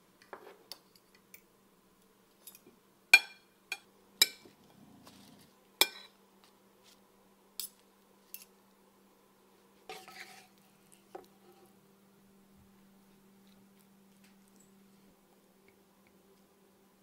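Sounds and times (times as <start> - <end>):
faint steady hum: 0.0 - 17.0.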